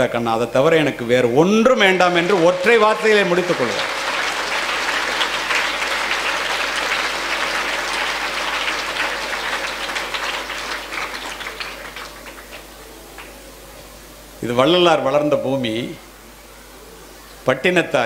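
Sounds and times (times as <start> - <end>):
audience applauding: 1.7 - 13.4.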